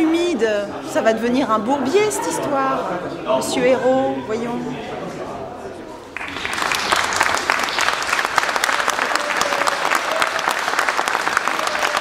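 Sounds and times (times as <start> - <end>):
crowd applauding: 6.2 - 12.0.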